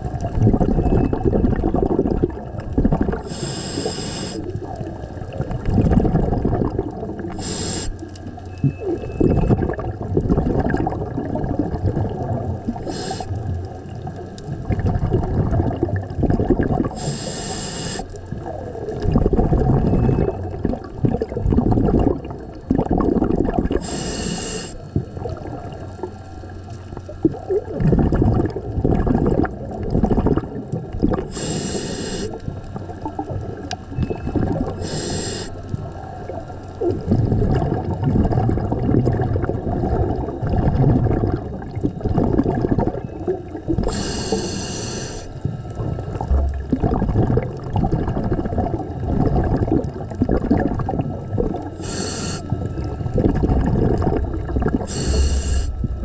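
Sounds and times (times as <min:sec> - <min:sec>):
exhaled bubbles bubbling: 0:00.0 - 0:56.0
regulator inhale hiss: 0:03.2 - 0:04.6, 0:07.2 - 0:08.1, 0:12.8 - 0:13.5, 0:16.9 - 0:18.2, 0:23.7 - 0:25.0, 0:31.2 - 0:32.4, 0:34.8 - 0:35.7, 0:43.8 - 0:45.4, 0:51.8 - 0:52.9, 0:54.7 - 0:56.0.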